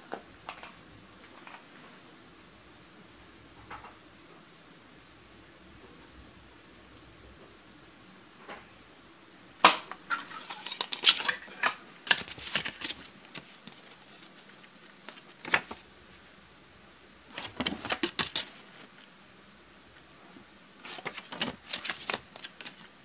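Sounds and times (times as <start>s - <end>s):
paper crackling: 10.1s - 15.8s, 17.3s - 19.1s, 20.8s - 23.0s.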